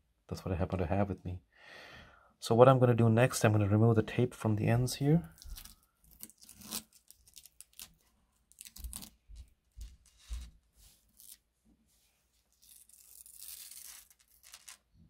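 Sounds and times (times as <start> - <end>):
tape peeling off wood: 5.4 - 11.4, 12.5 - 14.9.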